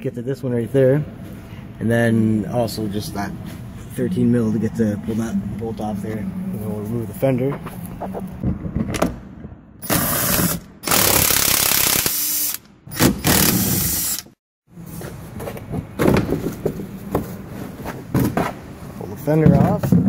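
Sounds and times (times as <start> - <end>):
power tool spinning off bolts: 9.8 - 14.3.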